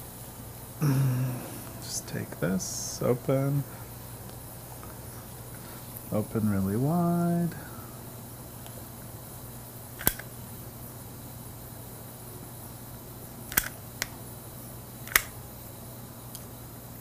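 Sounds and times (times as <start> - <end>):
dispensing gun trigger clicking: 10.0 - 10.3, 13.5 - 14.1, 15.1 - 15.4.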